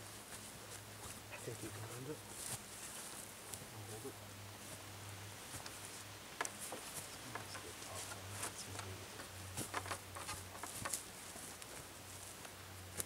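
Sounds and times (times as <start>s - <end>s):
footsteps on dry forest litter: 0.0s - 3.8s, 4.6s - 13.0s
wooden poles bending against log: 5.6s - 11.1s.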